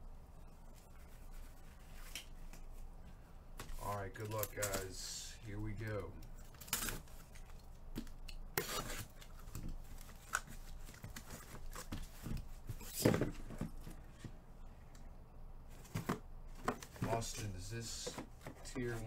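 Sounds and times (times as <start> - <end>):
blade scraping through tape: 8.6 - 9.1
cardboard handling: 15.7 - 19.0.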